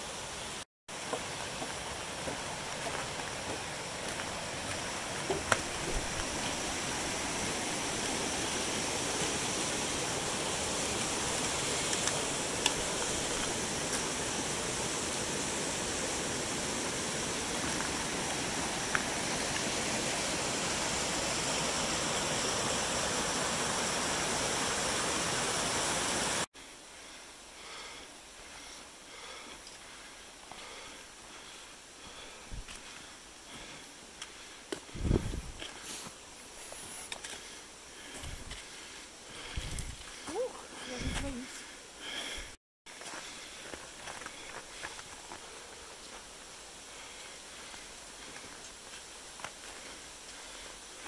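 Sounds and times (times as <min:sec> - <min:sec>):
creek rushing: 0:00.0 - 0:26.5
footsteps in snow: 0:02.2 - 0:07.5, 0:32.3 - 0:40.3.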